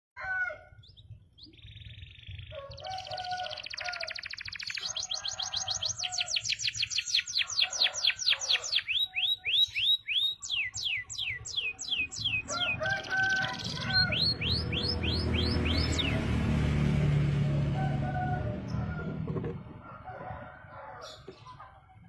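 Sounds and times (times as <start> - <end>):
canary singing: 0.8 - 16.6
low rumble: 11.9 - 20.8.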